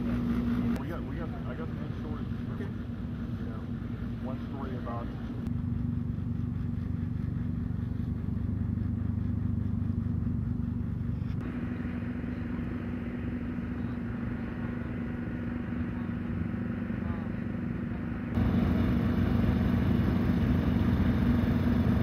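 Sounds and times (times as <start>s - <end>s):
motor humming: 18.4s - 22.0s.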